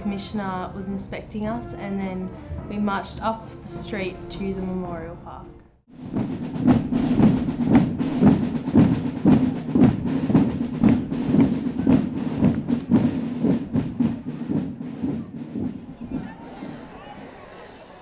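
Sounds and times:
marching drums: 0:05.9 - 0:17.0.

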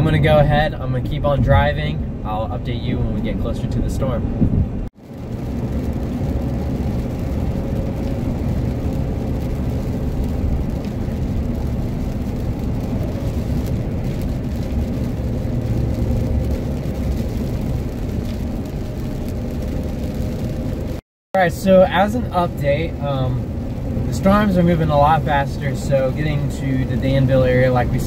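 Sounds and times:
engine and tyres on wet road: 0:00.0 - 0:28.0.

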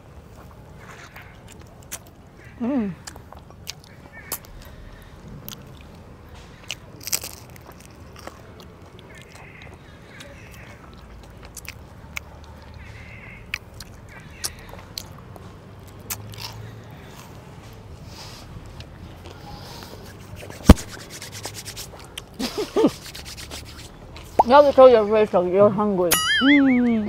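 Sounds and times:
chewing juicy fruit: 0:00.3 - 0:24.8
wet mouth clicks and smacks: 0:10.9 - 0:12.8, 0:13.5 - 0:15.2.

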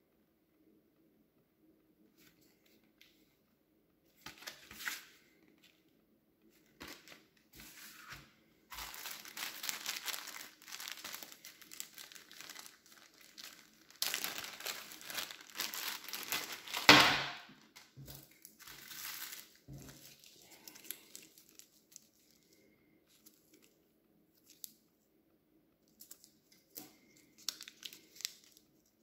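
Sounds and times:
food packaging crinkling: 0:06.5 - 0:24.8, 0:25.9 - 0:29.0.

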